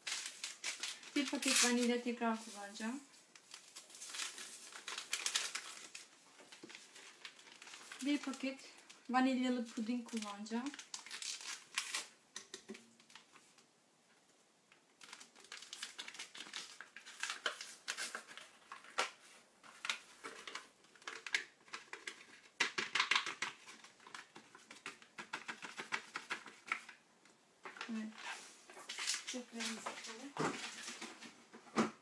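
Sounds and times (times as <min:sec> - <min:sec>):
paper packet crinkling: 0:00.0 - 0:12.2, 0:14.8 - 0:27.0, 0:27.7 - 0:31.2
packet tapping over metal bowl: 0:21.0 - 0:26.9.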